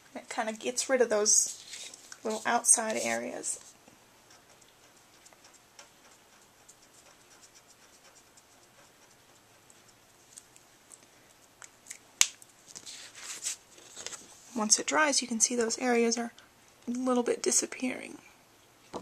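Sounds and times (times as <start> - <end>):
paper rustling: 1.4 - 3.8, 12.6 - 14.4.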